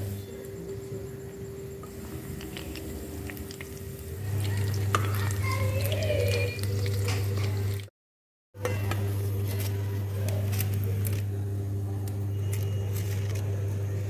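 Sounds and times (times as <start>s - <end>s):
low steady hum: 0.0s - 7.9s
food sizzling in hot oil: 1.9s - 7.9s.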